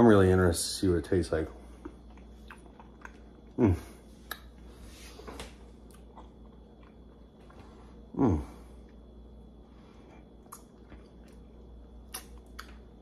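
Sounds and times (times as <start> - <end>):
man humming: 3.6 - 4.0, 8.1 - 8.6.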